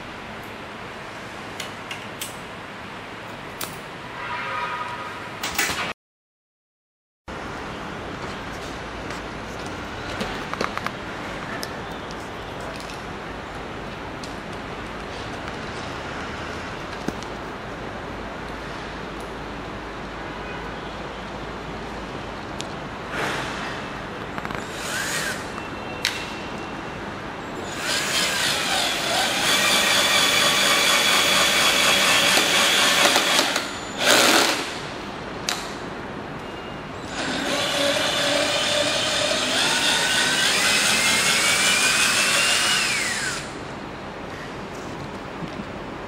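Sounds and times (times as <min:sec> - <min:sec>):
cordless drill whining: 0:27.6 - 0:34.6, 0:37.1 - 0:43.5.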